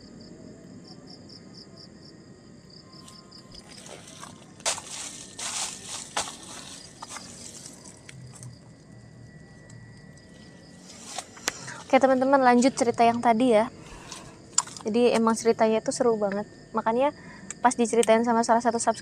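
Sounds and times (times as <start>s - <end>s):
insects chirping: 0.0s - 19.0s
hands scratching and rustling: 3.6s - 8.2s.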